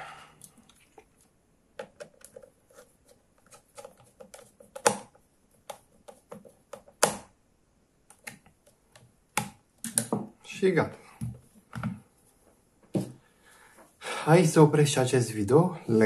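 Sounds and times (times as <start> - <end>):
plastic parts snapping: 3.4 - 7.3.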